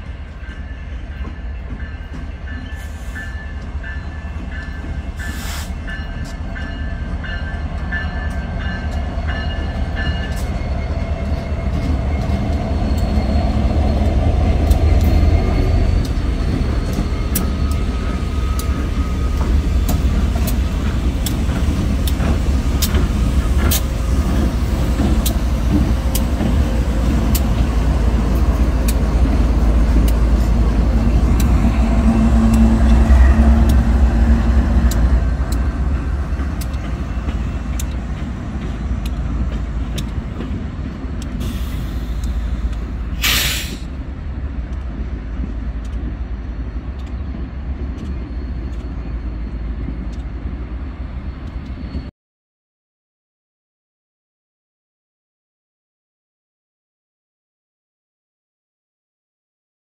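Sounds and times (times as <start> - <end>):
train wheels clicking over rail joints: 0.0 - 52.0
diesel locomotive engines rumbling: 0.0 - 52.1
crossing bell ringing: 0.4 - 19.4, 29.7 - 37.8.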